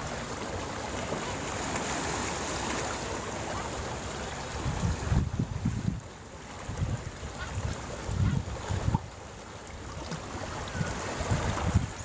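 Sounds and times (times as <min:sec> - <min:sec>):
wind gusting against microphone: 0:04.5 - 0:09.1, 0:10.5 - 0:12.0.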